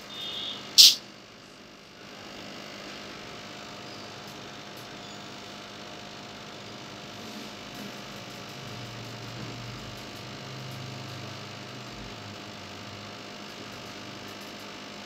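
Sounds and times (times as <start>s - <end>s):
sharp burst of noise: 0.1s - 1.0s
short high-pitched tone: 0.1s - 1.0s.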